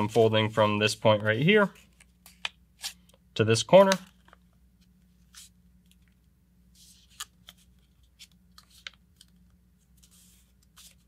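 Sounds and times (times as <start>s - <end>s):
low steady hum: 0.0s - 11.0s
paper rustling and creasing: 5.1s - 11.0s.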